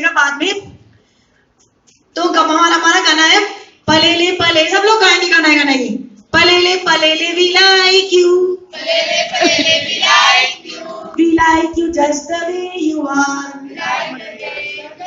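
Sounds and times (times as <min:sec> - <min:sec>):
group singing: 0:08.7 - 0:11.2, 0:13.5 - 0:15.0.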